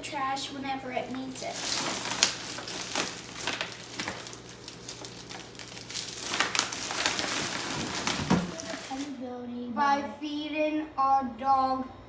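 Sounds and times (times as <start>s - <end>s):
plastic bag rustling: 0.5s - 9.2s.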